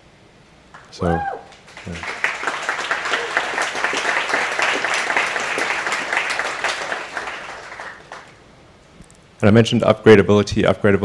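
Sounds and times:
audience applauding: 0:00.7 - 0:08.4.

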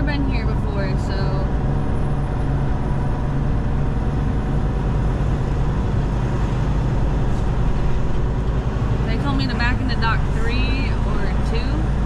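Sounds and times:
road and cab noise: 0:00.0 - 0:12.0
truck diesel engine droning: 0:00.0 - 0:12.0.

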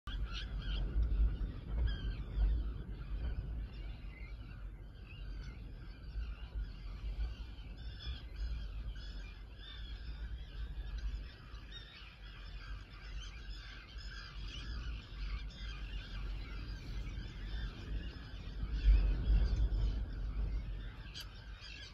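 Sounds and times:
birds chirping and singing: 0:00.1 - 0:21.9
low rumble: 0:00.1 - 0:21.9.

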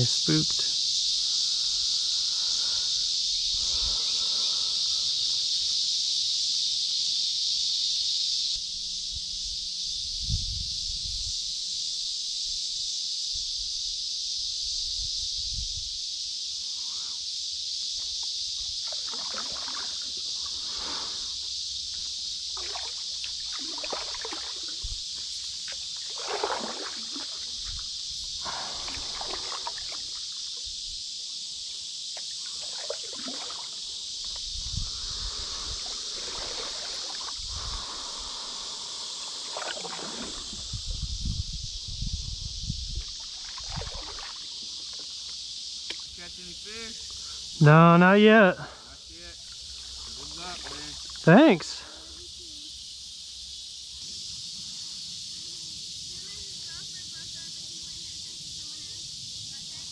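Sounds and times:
steady high-pitched hiss: 0:00.0 - 0:59.9
paddle splashing in water: 0:18.8 - 0:21.2, 0:22.5 - 0:24.9, 0:25.6 - 0:30.6, 0:32.2 - 0:33.9, 0:35.5 - 0:38.1, 0:39.3 - 0:40.7, 0:43.0 - 0:45.1, 0:49.9 - 0:51.2.

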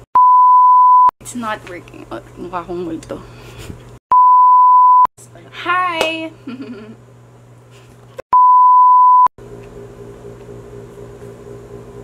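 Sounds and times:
high electronic beep: 0:04.1 - 0:05.1, 0:08.4 - 0:09.3.

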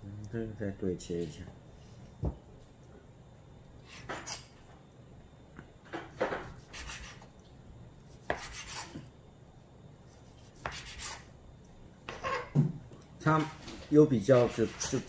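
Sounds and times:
knife sawing on cutting board: 0:06.6 - 0:07.2, 0:08.2 - 0:09.0, 0:10.1 - 0:11.3, 0:14.3 - 0:15.0.

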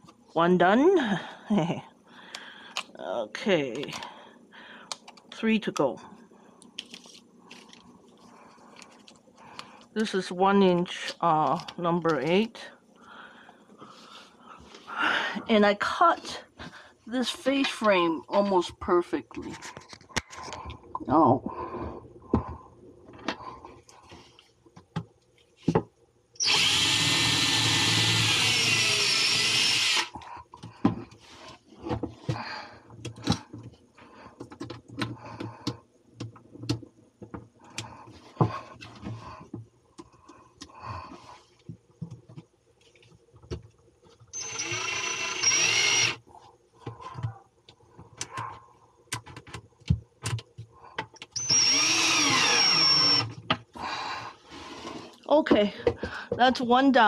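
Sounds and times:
drill driving screws into wood: 0:26.4 - 0:30.2, 0:44.3 - 0:46.2, 0:51.4 - 0:53.3.

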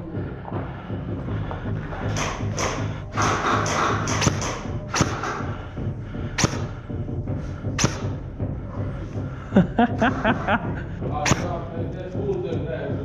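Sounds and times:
airsoft rifle shots: 0:02.1 - 0:05.4, 0:06.4 - 0:06.7, 0:07.8 - 0:08.2
rapid clicks: 0:02.1 - 0:05.4.

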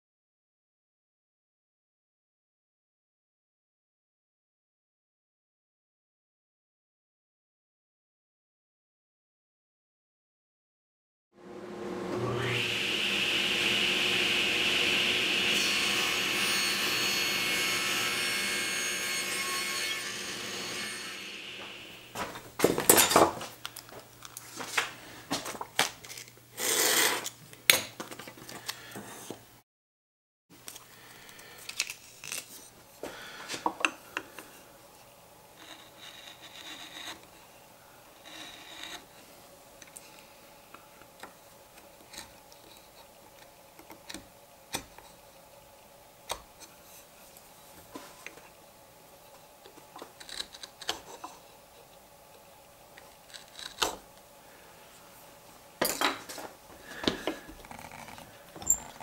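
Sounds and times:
table saw blade whine: 0:11.4 - 0:22.3.

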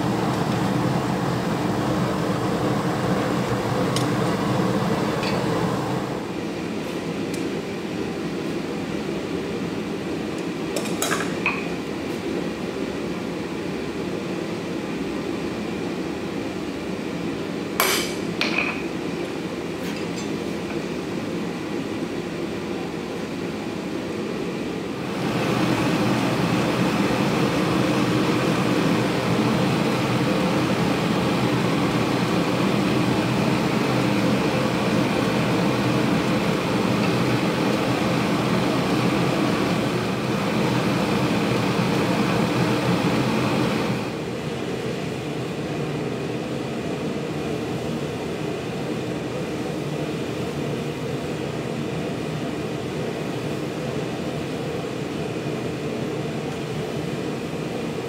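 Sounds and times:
gas forge burner roaring: 0:00.0 - 0:15.5, 0:16.6 - 0:58.0
hammer striking hot steel: 0:17.8 - 0:18.8.

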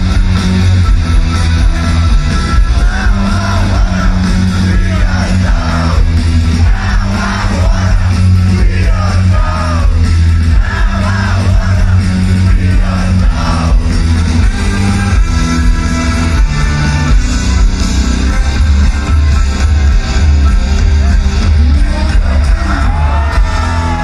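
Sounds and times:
live rock band playing: 0:00.0 - 0:24.0
repeating bass line: 0:00.0 - 0:24.0
male lead vocals: 0:02.7 - 0:13.8, 0:21.6 - 0:24.0.

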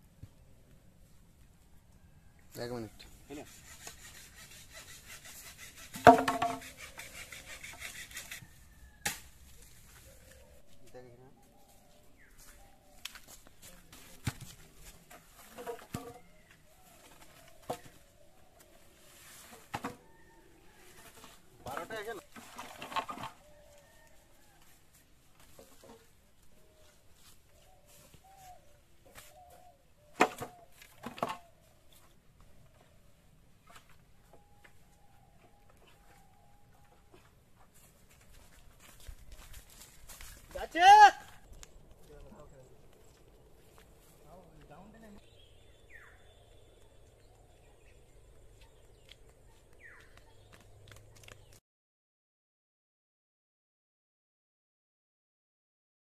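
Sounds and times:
bamboo poles scraping leaf litter: 0:03.0 - 0:08.7, 0:13.3 - 0:16.2, 0:18.6 - 0:20.0, 0:20.7 - 0:23.5
bamboo poles knocking together: 0:05.8 - 0:06.8, 0:09.0 - 0:09.5, 0:14.0 - 0:16.3, 0:21.6 - 0:23.4, 0:30.1 - 0:31.5
hollow knock of pole landing: 0:06.0 - 0:06.6
faint bird calls: 0:06.6 - 0:14.0, 0:26.0 - 0:37.4.

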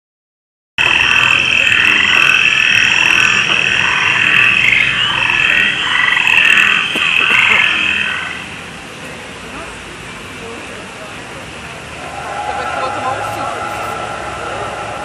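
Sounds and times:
frogs croaking in chorus: 0:00.8 - 0:08.7.

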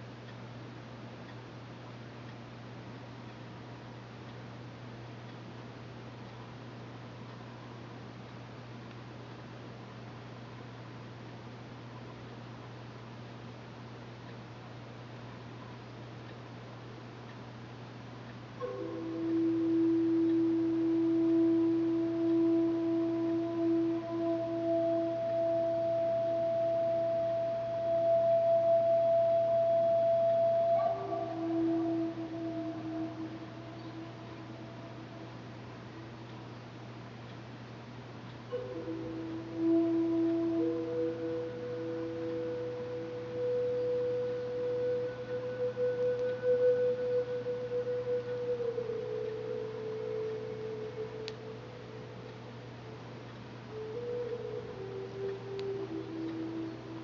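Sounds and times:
sustained ringing tone: 0:18.6 - 0:36.6, 0:38.5 - 0:53.1, 0:53.7 - 0:57.0.

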